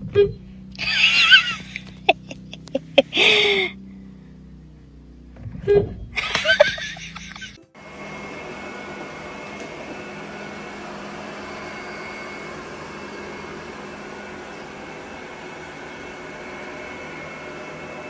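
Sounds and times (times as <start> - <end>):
robot vacuum cleaner running: 6.2 - 18.0.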